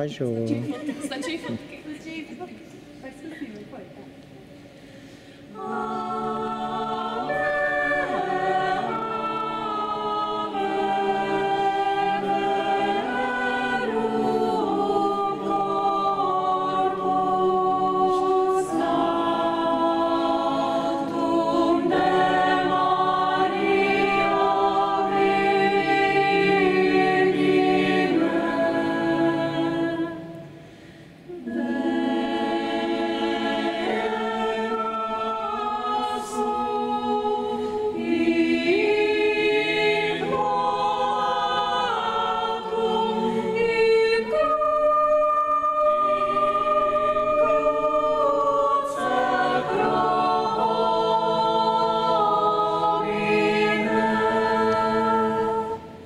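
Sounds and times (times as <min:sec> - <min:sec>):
mixed choir singing a cappella: 0:04.5 - 0:56.0.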